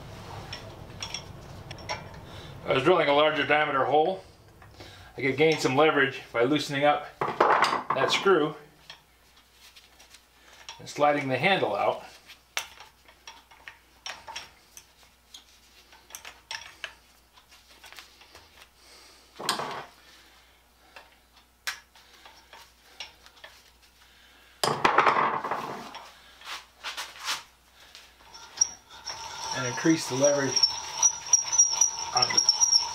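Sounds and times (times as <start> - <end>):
drill scraping into steel: 28.3 - 32.9
hand drill clicking: 28.3 - 32.9.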